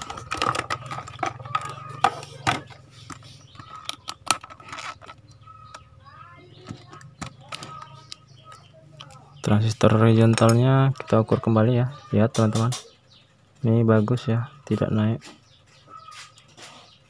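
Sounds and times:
clicks and knocks from handling: 0.0s - 5.9s, 6.5s - 11.2s.

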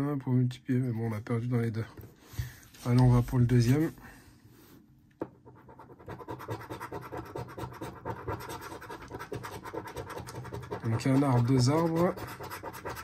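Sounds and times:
coin scratching lottery ticket: 5.7s - 13.0s.

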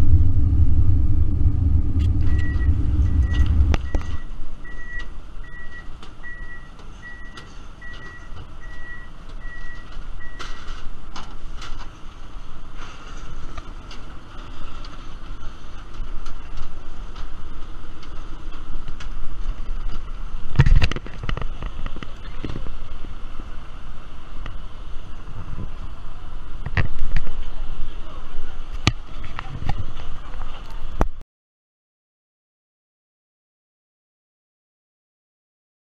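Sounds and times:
loud thump: 0.0s - 4.3s
steady low rumble: 0.0s - 6.6s, 12.0s - 31.2s
vehicle reversing alarm beeping: 0.0s - 10.8s.

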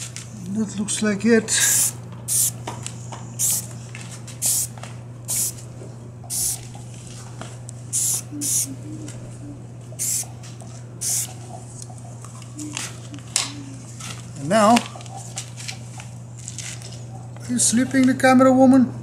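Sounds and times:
steady low hum: 0.0s - 17.8s
spray paint can hissing: 1.7s - 2.6s, 3.4s - 3.7s, 4.4s - 4.7s, 5.3s - 5.6s, 6.3s - 6.7s, 7.9s - 8.7s, 10.0s - 10.3s, 11.0s - 11.3s.

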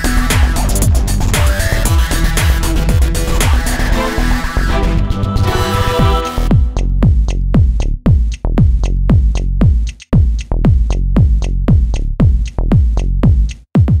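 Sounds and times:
kick drum beat: 0.0s - 4.0s, 6.0s - 14.0s
electronic music: 0.0s - 9.5s.

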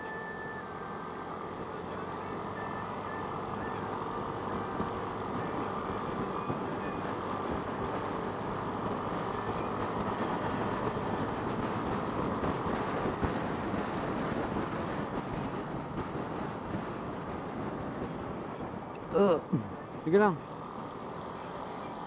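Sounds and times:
motorcycle engine hum: 0.0s - 22.0s
wind rushing over microphone: 4.4s - 21.2s.

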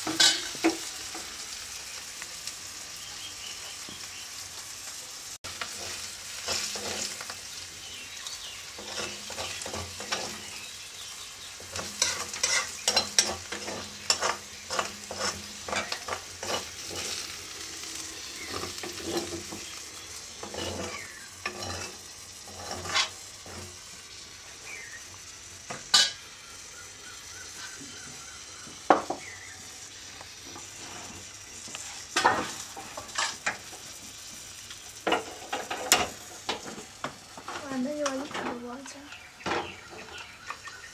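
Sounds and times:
metal ladle scraping pan: 0.0s - 0.9s, 11.7s - 19.6s, 20.4s - 23.8s, 25.8s - 26.2s, 31.9s - 33.7s
vegetable sizzling in a wok: 0.0s - 40.9s.

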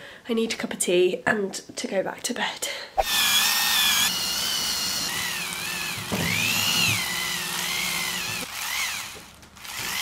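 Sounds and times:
electric epilator motor whine: 3.0s - 10.0s.

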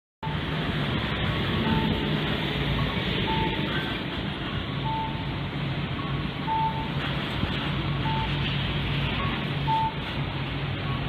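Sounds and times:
short electronic beeps: 1.6s - 2.2s, 2.8s - 3.8s, 4.4s - 5.3s, 5.9s - 7.0s, 8.0s - 8.4s, 9.2s - 10.1s.

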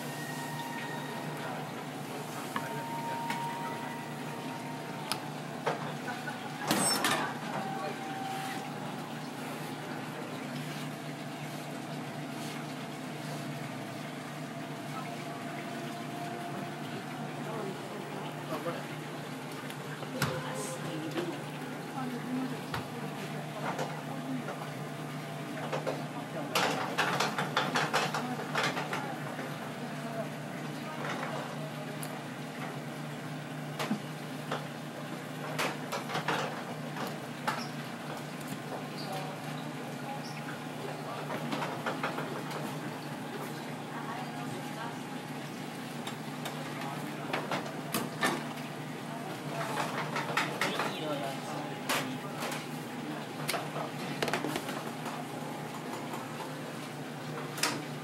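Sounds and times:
low machine hum: 0.0s - 58.0s
faint voices: 14.6s - 27.1s.

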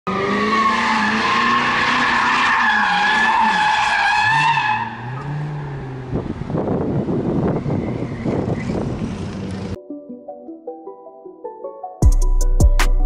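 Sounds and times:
car engine revving: 0.1s - 9.8s.

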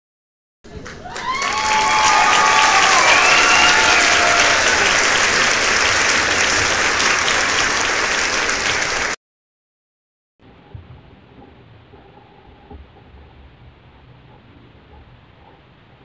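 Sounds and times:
crowd applause and cheering: 0.7s - 9.2s
whistles: 2.8s - 4.2s.

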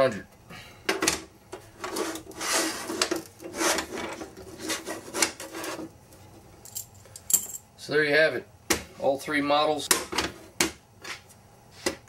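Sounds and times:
steel cases scraping together: 1.7s - 5.9s.

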